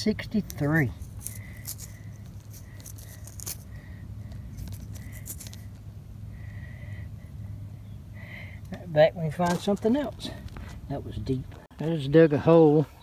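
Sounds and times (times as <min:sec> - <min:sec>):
steady low hum: 0:00.0 - 0:11.7
fingers scraping soil off metal: 0:00.3 - 0:03.8, 0:04.4 - 0:05.8.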